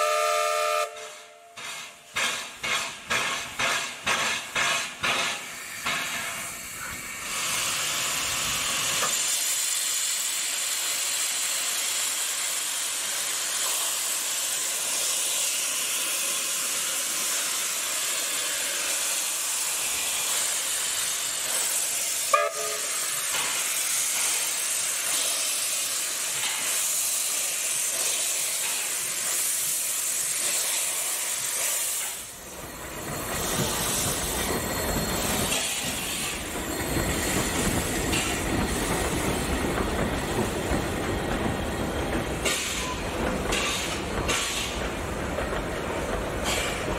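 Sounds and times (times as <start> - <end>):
train whistle toot: 0.0 - 1.6, 22.3 - 23.1
locomotive steam hissing: 0.0 - 46.9
train low rumble: 15.8 - 46.9.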